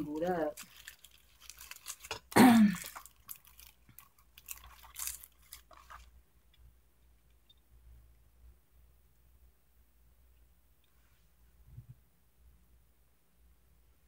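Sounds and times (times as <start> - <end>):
plastic package crinkling: 0.0 - 6.2
woman clearing throat: 2.4 - 2.9.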